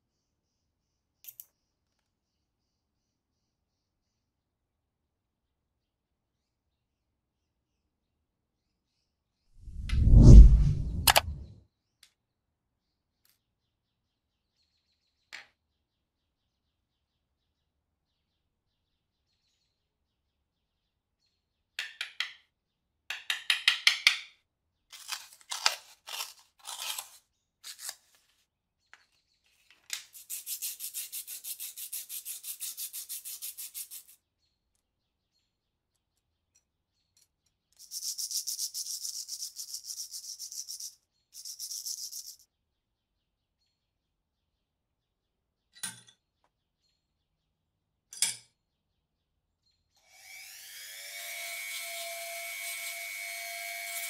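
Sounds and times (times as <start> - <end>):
single click: 10.8 - 11.5
sandpaper crinkling and tearing: 25.0 - 28.4
sandpaper rubbing metal: 30.2 - 34.2, 37.8 - 42.4.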